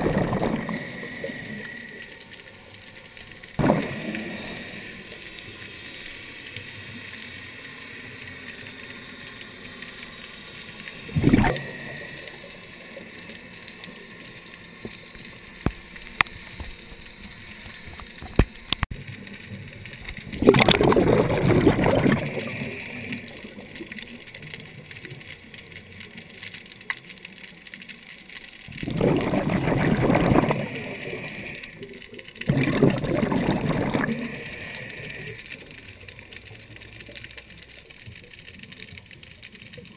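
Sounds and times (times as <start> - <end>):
underwater bubbles gurgling: 0.0 - 39.9.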